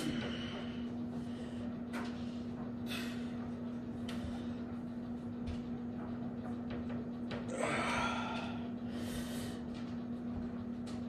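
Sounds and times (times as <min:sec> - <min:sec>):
steady low hum: 0:00.0 - 0:11.0
person breathing hard: 0:07.6 - 0:09.7.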